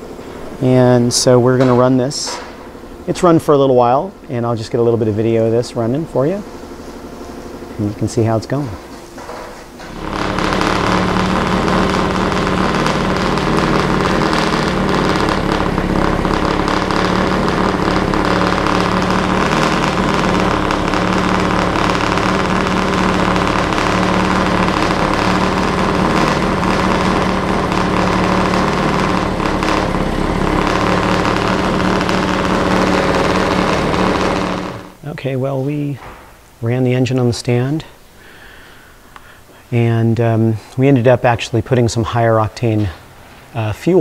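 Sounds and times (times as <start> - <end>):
race engine running steadily: 0.0 - 35.0.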